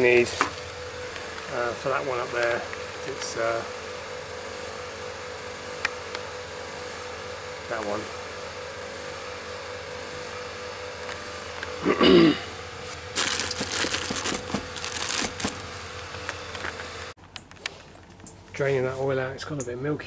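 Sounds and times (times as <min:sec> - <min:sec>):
steady mechanical hum: 0:00.0 - 0:20.0
plastic case parts rattling: 0:13.2 - 0:15.6.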